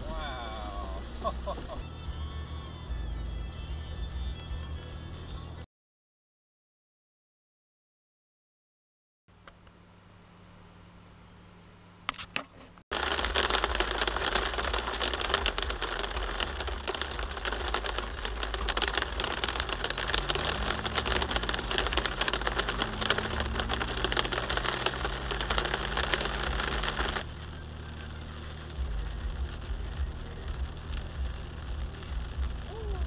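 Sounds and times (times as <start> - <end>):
hail pelting car windshield: 12.9 - 33.0.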